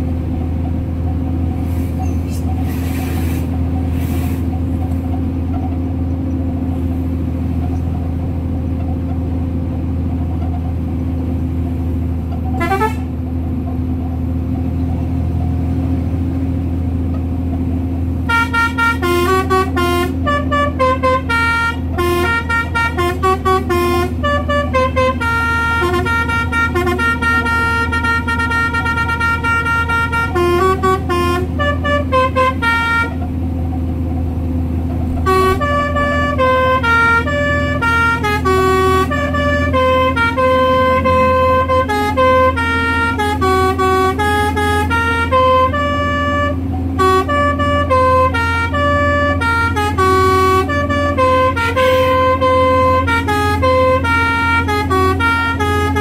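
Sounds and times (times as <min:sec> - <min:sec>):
truck engine running: 0:00.0 - 0:56.0
horn playing a tune: 0:12.6 - 0:13.1, 0:18.2 - 0:33.3, 0:35.1 - 0:56.0.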